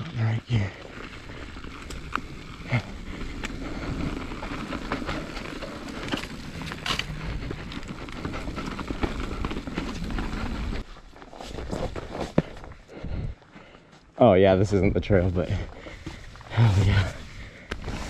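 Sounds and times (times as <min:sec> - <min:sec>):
bike tyres rumbling on dirt: 0:00.2 - 0:13.3, 0:14.6 - 0:18.0
bike rattling over roots: 0:00.6 - 0:12.8.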